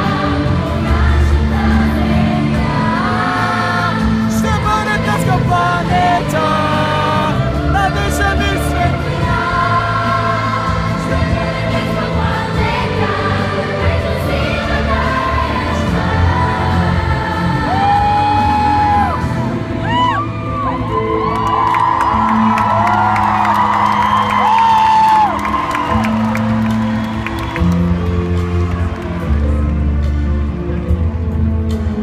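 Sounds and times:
live pop song with choir and band: 0.0s - 30.6s.

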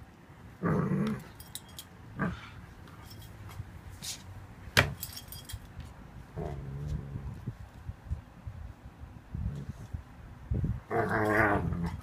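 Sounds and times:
dog grumbling growl: 0.6s - 1.3s, 10.9s - 12.0s
collar tags jingling: 1.2s - 2.0s, 2.9s - 3.6s, 4.9s - 5.8s.

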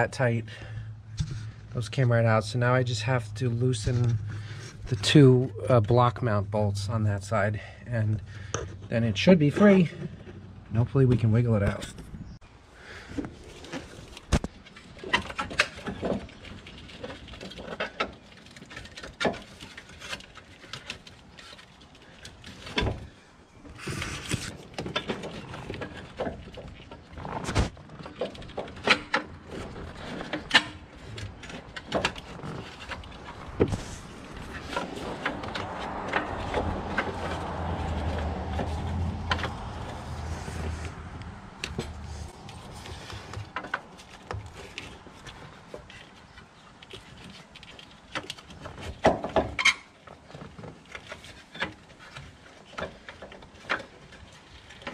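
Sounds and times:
low rumbling noise: 0.0s - 9.4s, 29.6s - 43.6s.

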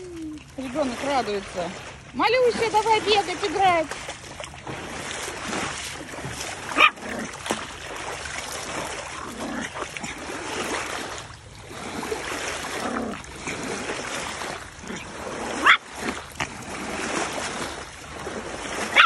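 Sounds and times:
water splashing against bank: 0.0s - 19.0s
dog barking sharply: 6.8s - 7.0s.

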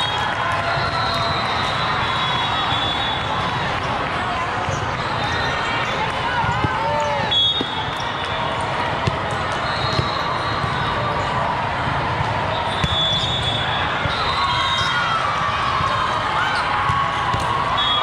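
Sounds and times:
volleyball slaps: 7.5s - 10.2s, 12.1s - 13.5s, 16.8s - 17.6s.

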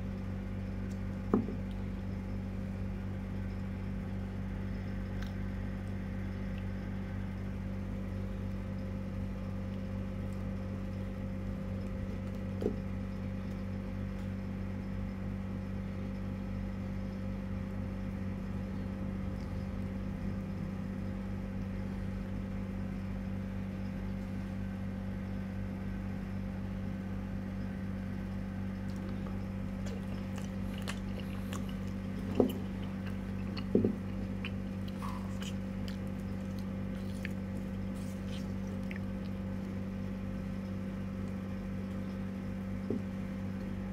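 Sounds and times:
steady low hum: 0.0s - 43.9s
bamboo tube knocking on table: 1.3s - 1.6s, 33.7s - 34.0s.

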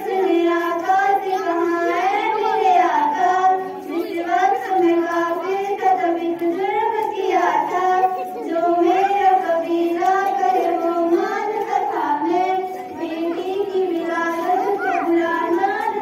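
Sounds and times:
girls singing together: 0.0s - 16.0s.

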